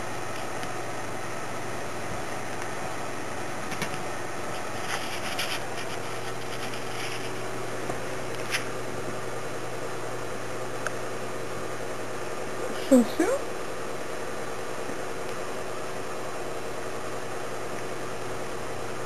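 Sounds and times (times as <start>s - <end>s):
cat rubbing on carpet: 4.5s - 7.5s.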